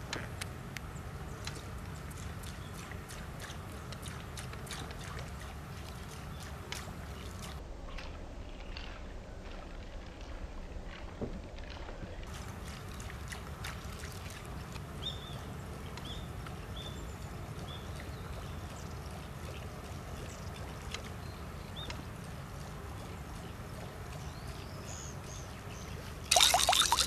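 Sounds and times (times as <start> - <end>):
lure splashing on water: 1.4 - 7.6, 26.0 - 27.0.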